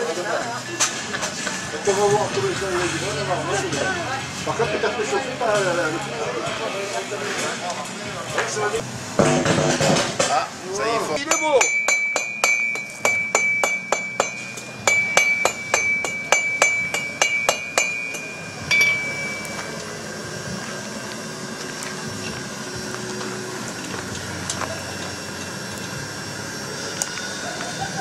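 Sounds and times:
gas forge burner hissing: 0.0s - 28.0s
hammer striking steel on anvil: 11.2s - 19.8s.

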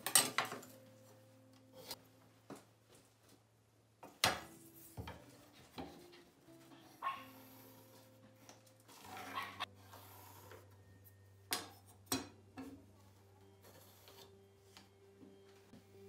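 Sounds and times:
pencil scratching on wood: 6.8s - 10.7s.

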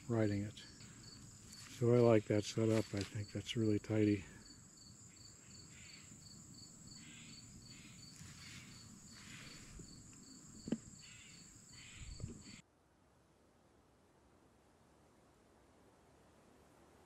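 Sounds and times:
insects trilling: 0.0s - 12.6s
pulsing insect chirp: 0.0s - 12.6s
short thumps: 10.6s - 10.9s.

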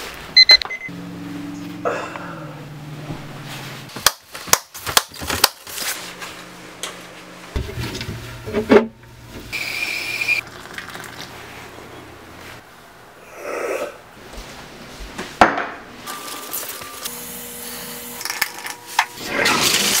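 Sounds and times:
low steady hum: 0.3s - 4.0s.

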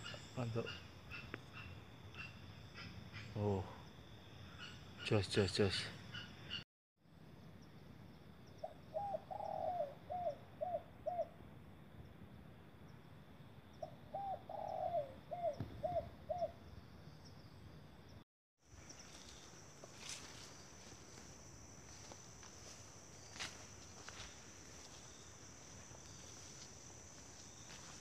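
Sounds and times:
dove cooing: 8.6s - 11.4s, 13.8s - 16.6s.

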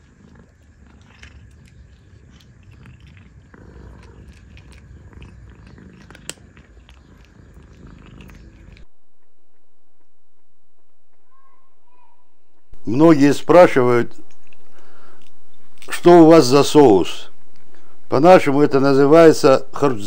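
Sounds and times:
kitten crunching dry kibble: 0.0s - 8.9s, 14.1s - 16.1s.

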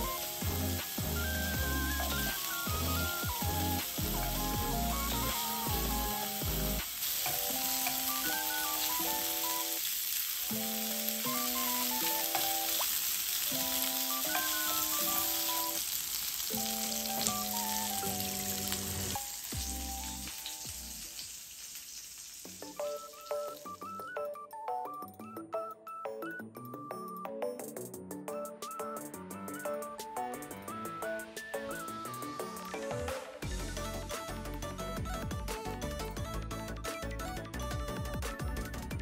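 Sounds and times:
light tune of clear notes: 0.0s - 9.9s, 10.5s - 12.8s, 13.5s - 15.9s, 16.5s - 20.7s, 22.7s - 39.0s
meat sizzling in a frying pan: 0.0s - 24.2s.

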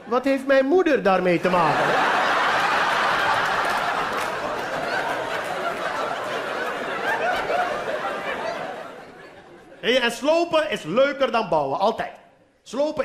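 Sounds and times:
audience laughing: 1.4s - 9.9s.

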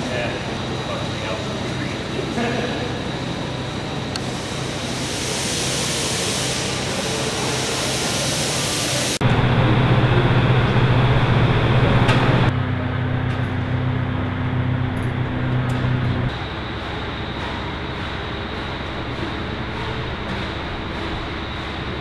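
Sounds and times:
low machine hum: 0.0s - 5.5s, 9.0s - 22.0s.

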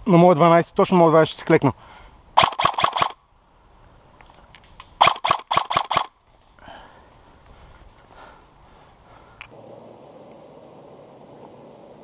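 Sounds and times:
airsoft rifle shots: 2.4s - 3.2s, 5.0s - 6.2s.

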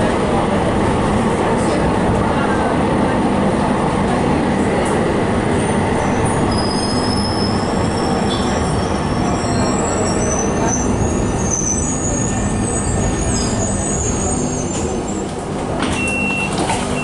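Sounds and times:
tram rumbling on rails: 0.0s - 17.0s
high wavering wheel squeal: 6.0s - 15.3s.

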